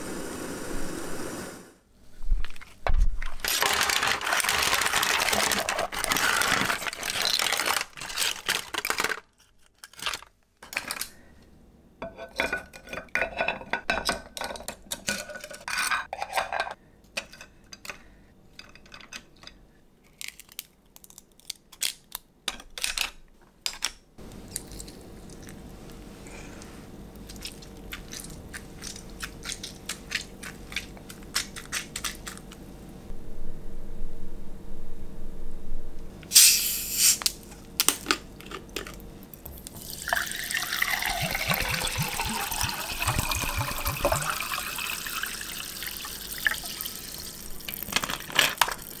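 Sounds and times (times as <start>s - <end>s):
low steady hum: 24.2s - 49.0s.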